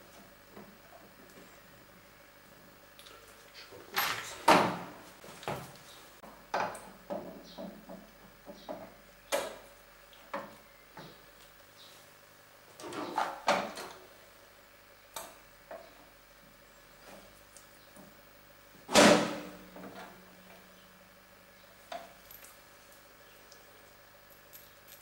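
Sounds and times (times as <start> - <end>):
metal parts clunking and rattling: 3.9 - 4.8.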